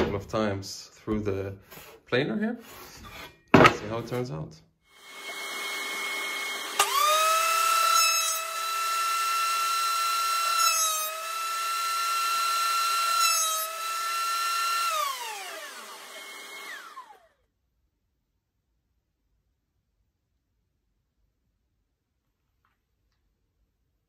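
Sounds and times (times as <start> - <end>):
planer motor whining: 5.0 - 17.4
planer winding down: 5.0 - 17.4.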